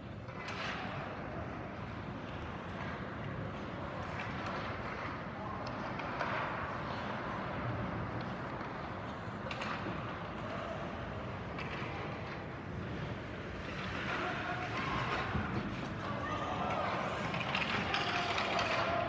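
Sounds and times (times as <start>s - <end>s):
hockey sticks and puck clacking: 0.2s - 19.0s
skates scraping on ice: 5.9s - 19.0s.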